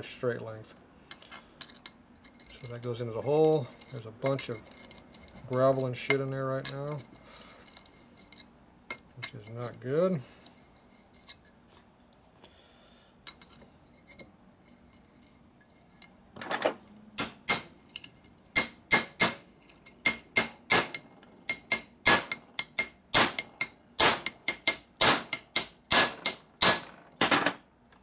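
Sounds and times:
hammer striking metal punch: 0:17.2 - 0:17.7, 0:18.6 - 0:19.4, 0:20.1 - 0:27.6.

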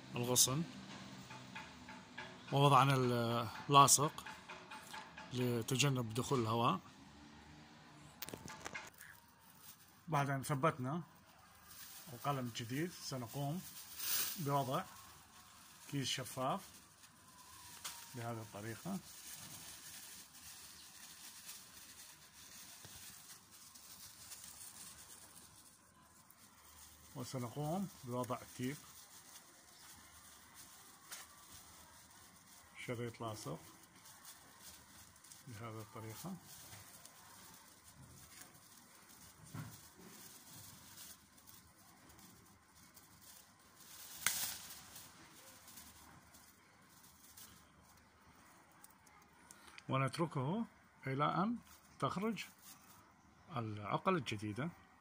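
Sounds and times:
plastic bag rustling: 0:08.1 - 0:49.7, 0:51.6 - 0:53.2
sharp tape crackle: 0:08.1 - 0:49.8, 0:51.5 - 0:53.2.

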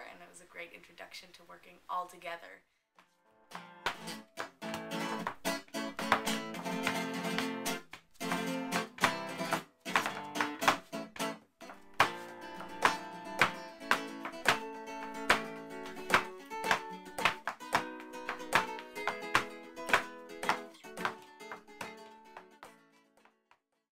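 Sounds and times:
flamenco guitar strumming: 0:03.5 - 0:23.4.

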